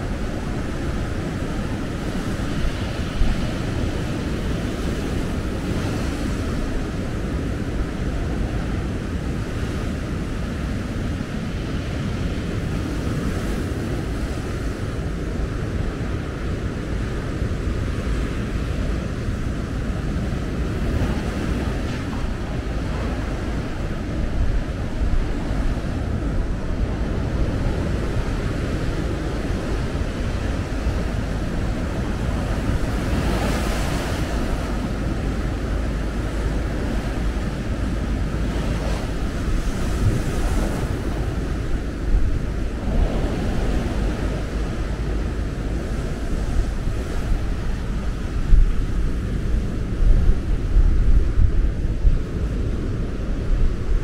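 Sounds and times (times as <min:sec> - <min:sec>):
sea waves breaking: 0:00.0 - 0:54.0
wind buffeting microphone: 0:00.0 - 0:54.0.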